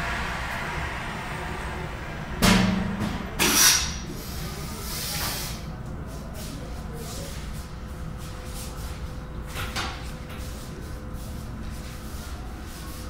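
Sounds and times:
low buzz: 0:00.0 - 0:04.1
compressed air hissing from valves: 0:03.4 - 0:05.7.

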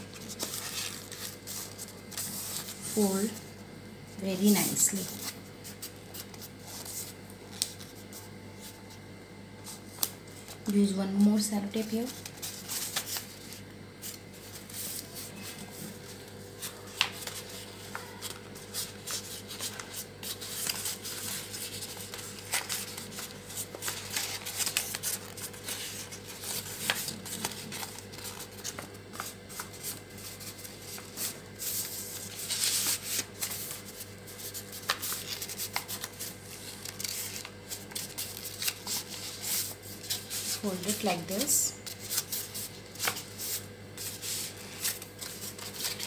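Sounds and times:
wrapping paper crackling and rustling: 0:00.0 - 0:03.5, 0:04.2 - 0:09.0, 0:09.6 - 0:46.0.

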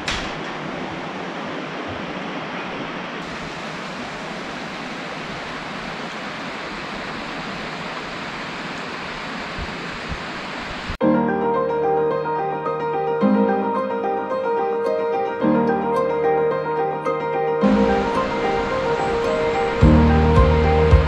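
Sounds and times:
flowing water rushing: 0:00.0 - 0:11.0, 0:17.6 - 0:21.0.

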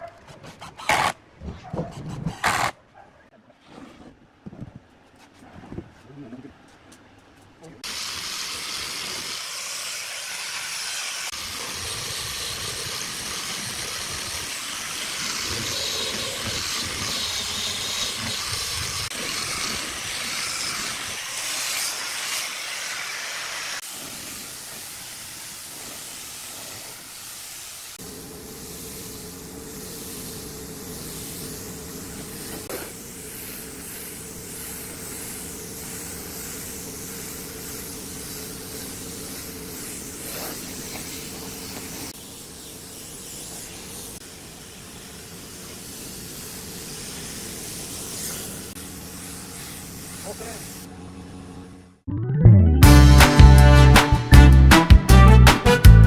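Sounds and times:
quieter steady hiss: 0:04.2 - 0:51.6
sander on wood hissing: 0:07.8 - 0:50.9.

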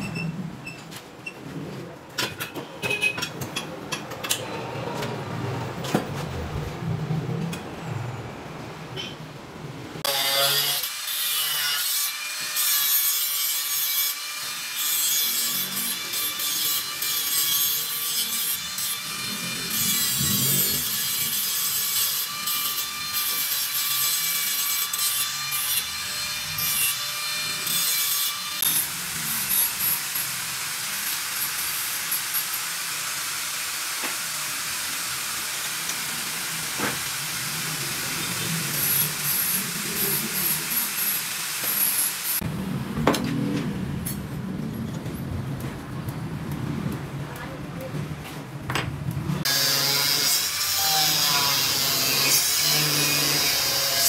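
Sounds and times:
angle grinder grinding steel: 0:10.0 - 0:42.5, 0:49.4 - 0:54.0.

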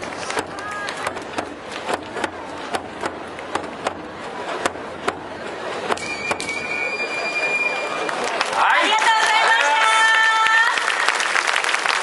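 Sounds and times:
festival crowd noise: 0:00.0 - 0:12.0
high steady whistle-like tone: 0:06.0 - 0:08.1.

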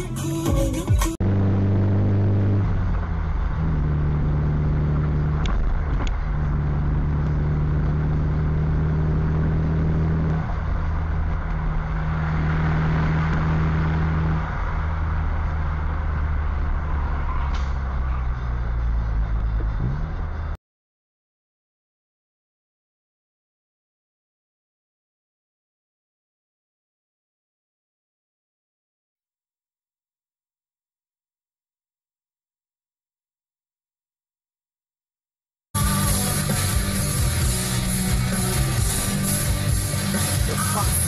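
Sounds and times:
road and tyre noise: 0:01.1 - 0:20.6, 0:35.8 - 0:41.0
low engine drone: 0:01.2 - 0:20.6, 0:35.8 - 0:41.0.

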